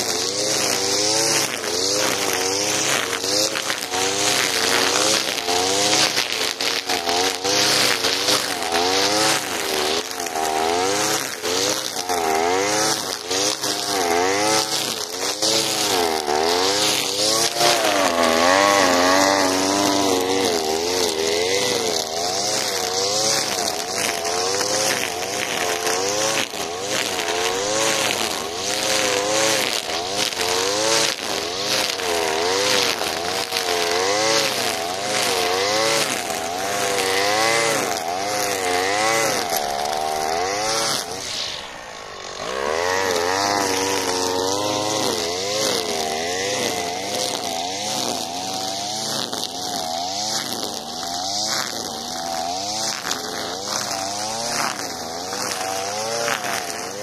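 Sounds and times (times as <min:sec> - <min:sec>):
brushcutter engine revving: 0:00.0 - 0:57.0
hiss of spinning line: 0:38.6 - 0:45.0.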